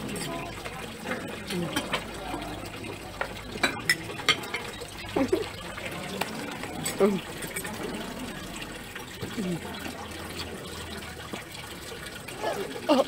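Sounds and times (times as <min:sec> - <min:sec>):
tableware clinking: 0:03.5 - 0:04.7.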